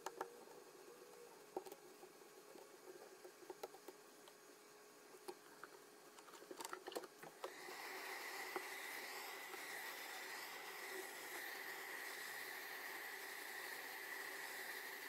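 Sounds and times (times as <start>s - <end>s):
high fan whine: 0.0s - 15.0s
hot air gun blowing: 7.4s - 15.0s.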